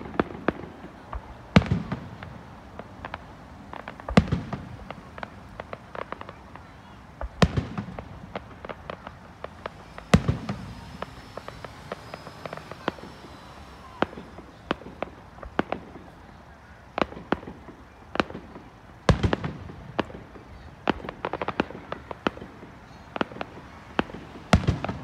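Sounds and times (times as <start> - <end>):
crackling pops: 0.0 - 25.0
firework booms: 0.0 - 25.0.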